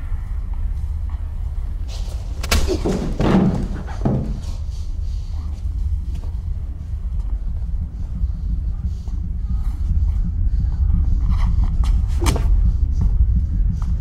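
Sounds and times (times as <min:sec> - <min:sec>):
steady low hum: 0:00.0 - 0:14.0
door slamming: 0:02.5 - 0:04.4
heavy thump with clatter: 0:02.5 - 0:04.6.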